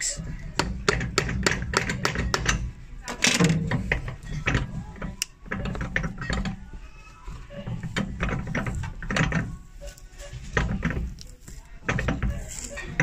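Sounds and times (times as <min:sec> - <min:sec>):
leather heel cracking and creaking: 0:03.2 - 0:13.0.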